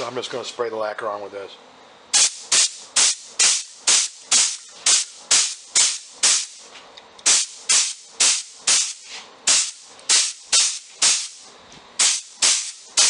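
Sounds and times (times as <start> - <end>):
spray gun hissing bursts: 2.1 - 6.6, 7.2 - 11.4, 12.0 - 13.0.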